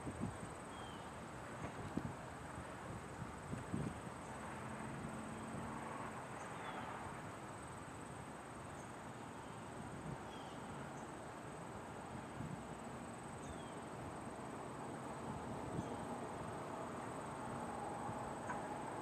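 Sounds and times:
faint wind: 0.0s - 19.0s
distant locomotive hum: 0.5s - 19.0s
insects trilling: 12.6s - 19.0s.

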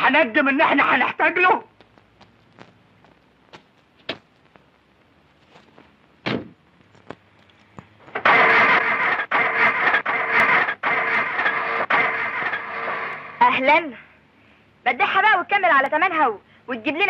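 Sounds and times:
starter motor cranking engine: 8.2s - 13.4s.

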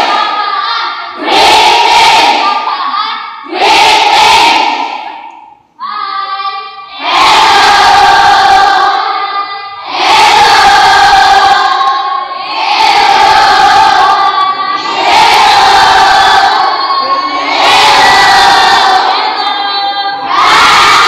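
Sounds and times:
students shouting in unison: 9.8s - 21.0s.

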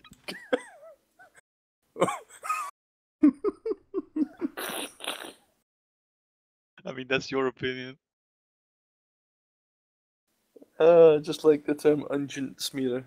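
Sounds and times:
men laughing: 0.3s - 1.4s, 2.0s - 4.6s.

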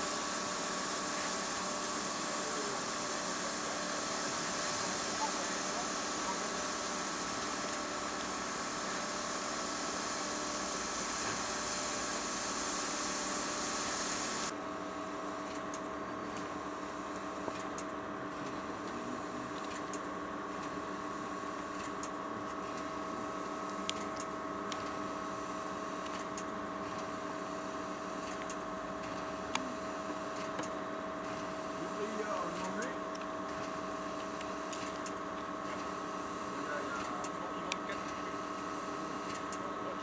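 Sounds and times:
high steam hiss: 0.0s - 14.5s
steam locomotive hum: 0.0s - 14.5s, 15.2s - 40.0s.

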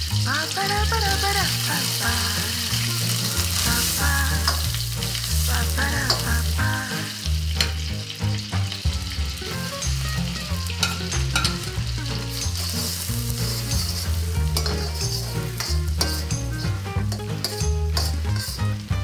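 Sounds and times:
butter sizzling in a wok: 0.0s - 19.0s
metal spatula scraping a pan: 9.5s - 18.8s.

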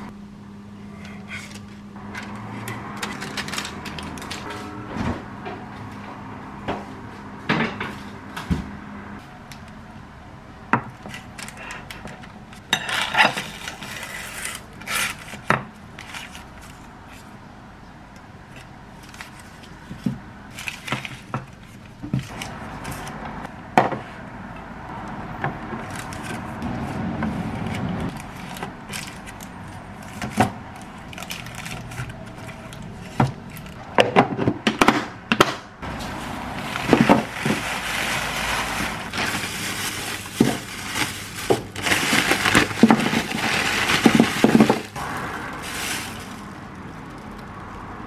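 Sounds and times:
parchment paper rustling: 12.6s - 17.4s, 18.5s - 23.4s, 25.8s - 33.8s, 35.8s - 47.7s.

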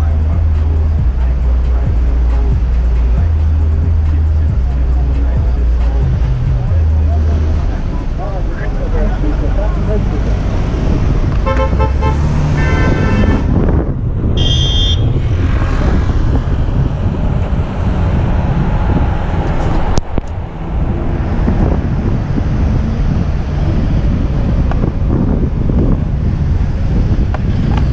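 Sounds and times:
cars and bus rumbling: 0.0s - 27.9s
wind buffeting microphone: 9.0s - 27.9s.

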